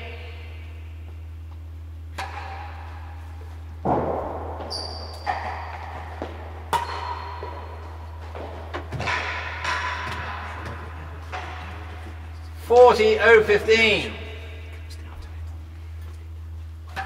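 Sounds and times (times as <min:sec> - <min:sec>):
ball knocking in indoor court: 0:02.1 - 0:12.3.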